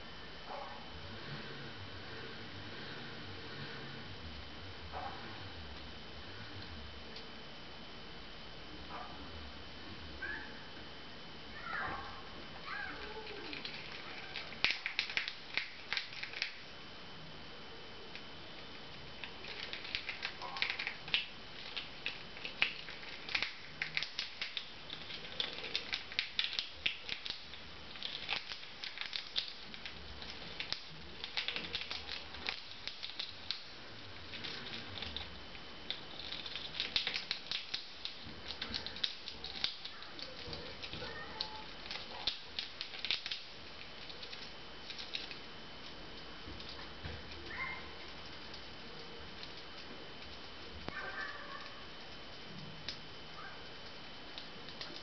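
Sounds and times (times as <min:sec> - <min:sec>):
chipmunk gnawing food: 0:12.7 - 0:16.8, 0:18.0 - 0:55.0.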